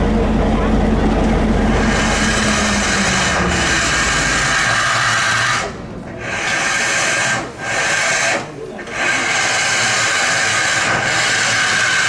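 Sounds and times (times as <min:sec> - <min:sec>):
low rumble: 0:00.0 - 0:07.7
steam locomotive hissing: 0:01.5 - 0:12.0.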